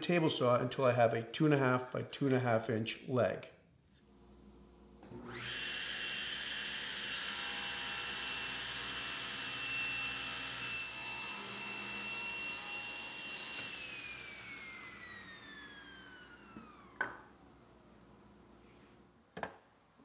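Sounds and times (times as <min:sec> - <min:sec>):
table saw motor whining: 0:05.1 - 0:17.4
saw blade cutting wood: 0:05.4 - 0:15.1.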